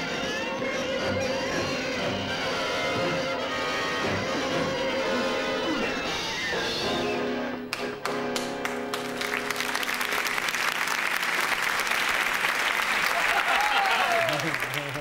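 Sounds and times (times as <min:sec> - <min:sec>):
dramatic orchestral music: 0:00.0 - 0:08.9
audience applause: 0:08.4 - 0:15.0.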